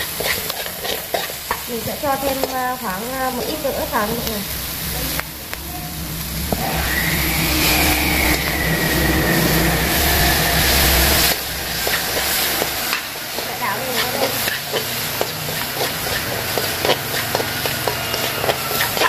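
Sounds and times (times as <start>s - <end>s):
tongs scraping and clicking on pan: 0.0s - 4.4s, 11.3s - 19.0s
food sizzling in a wok: 0.0s - 19.0s
low engine-like hum: 2.9s - 12.3s.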